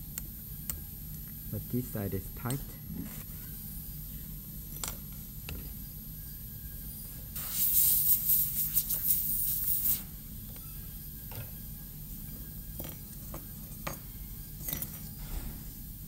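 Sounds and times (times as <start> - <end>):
dental air syringe blowing: 7.3 - 10.2.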